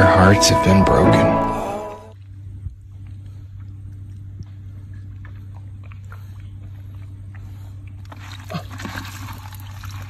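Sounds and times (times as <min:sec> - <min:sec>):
water splashing and sloshing: 0:08.0 - 0:10.0.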